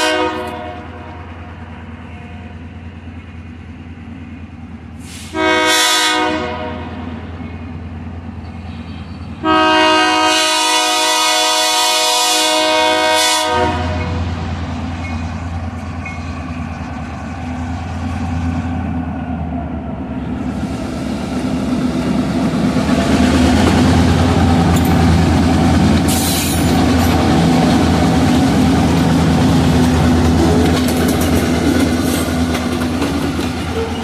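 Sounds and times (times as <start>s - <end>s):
locomotive engine drone: 0.0s - 34.0s
short high-pitched train noises: 5.0s - 6.2s.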